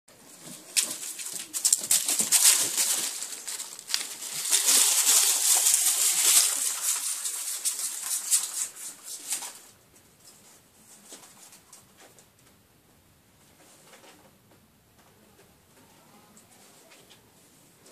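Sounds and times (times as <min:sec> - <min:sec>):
dry leaves rustling and crackling: 0:00.2 - 0:09.4.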